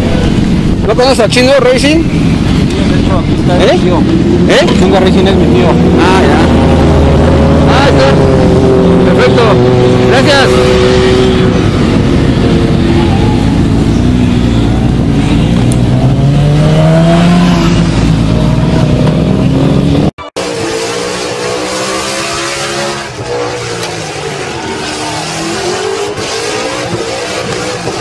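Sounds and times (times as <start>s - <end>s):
motorcycle engine running: 0.0s - 20.1s
car engine revving: 0.0s - 28.0s.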